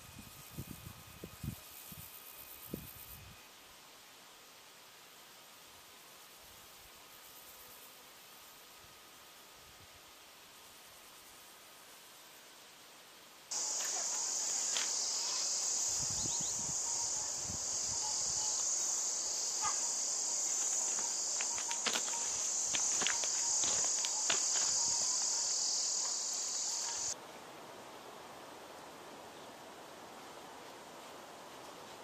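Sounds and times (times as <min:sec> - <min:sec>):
insect chorus shrilling: 0:13.5 - 0:27.2.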